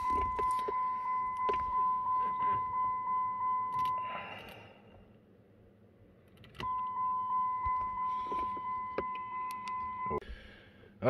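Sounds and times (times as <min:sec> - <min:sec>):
car electronic warning chime: 0:00.0 - 0:04.2, 0:06.6 - 0:10.2
keys rattling in ignition: 0:06.2 - 0:07.0.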